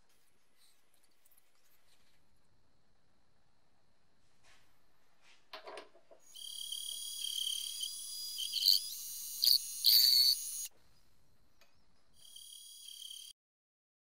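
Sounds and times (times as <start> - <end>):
lathe cutting whine: 6.4 - 10.7.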